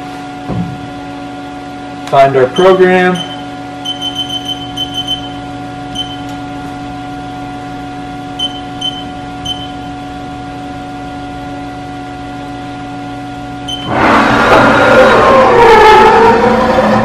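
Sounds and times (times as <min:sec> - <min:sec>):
steady machine hum: 0:00.0 - 0:17.0
short high keypad beeps: 0:02.6 - 0:05.3, 0:06.0 - 0:06.3, 0:08.4 - 0:09.8, 0:13.7 - 0:13.9.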